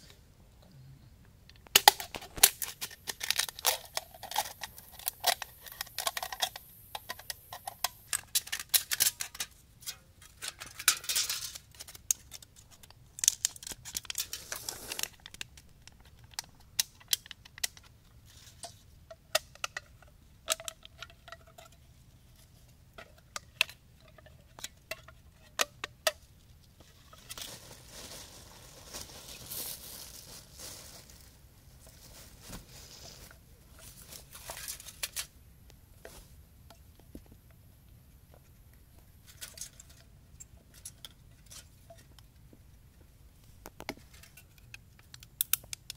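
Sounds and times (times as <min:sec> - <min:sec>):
soft rustle: 0:13.7 - 0:15.2, 0:26.6 - 0:37.4.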